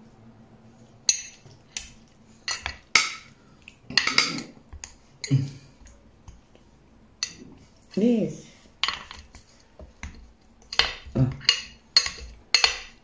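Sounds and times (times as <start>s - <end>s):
utensils clinking on glass dish: 2.5s - 3.3s, 3.9s - 4.5s, 8.8s - 9.4s, 10.0s - 13.0s.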